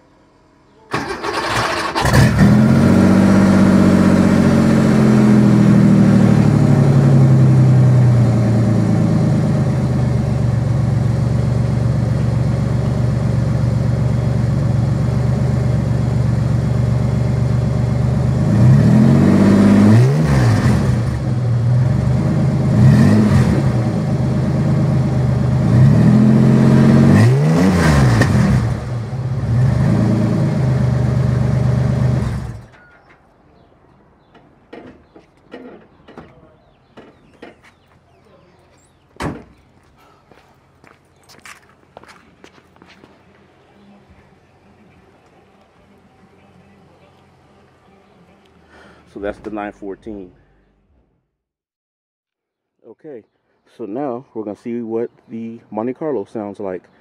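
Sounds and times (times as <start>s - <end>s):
car engine idling: 0.9s - 18.5s, 41.8s - 50.8s
car engine starting: 0.9s - 32.8s
engine revving: 1.0s - 32.7s.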